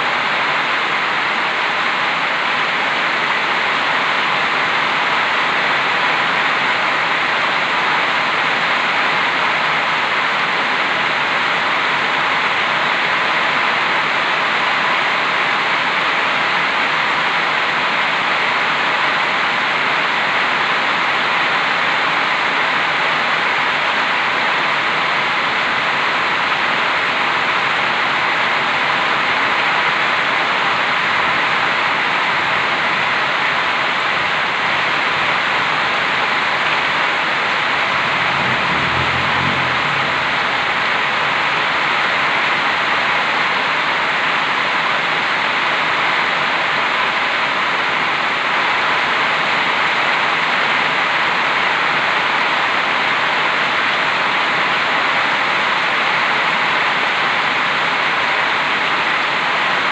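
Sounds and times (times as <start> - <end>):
heavy rain pouring: 0.0 - 59.9
low rumble: 37.2 - 41.8.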